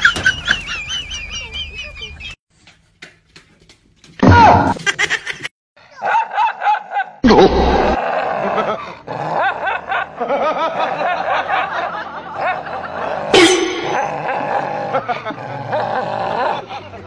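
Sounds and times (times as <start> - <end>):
dog snarling and growling: 7.7 - 10.2, 12.9 - 16.6.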